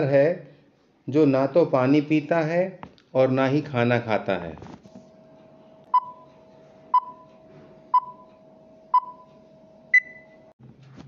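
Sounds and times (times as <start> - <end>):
short timer beeps: 5.9 - 6.3, 6.9 - 7.3, 8.9 - 10.4
higher beep: 9.9 - 10.4.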